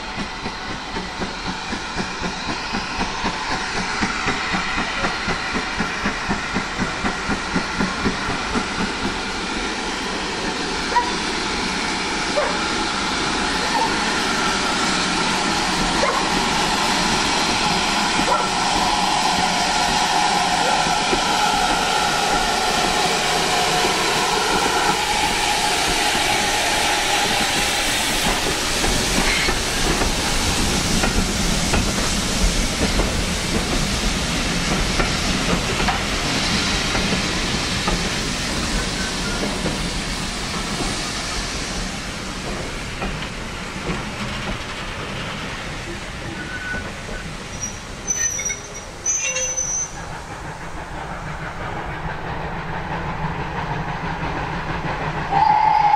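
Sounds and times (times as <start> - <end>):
steam locomotive pulling out: 0.0 - 55.9
coaches rolling over rails: 41.7 - 55.9
wheel squeals: 46.3 - 50.0.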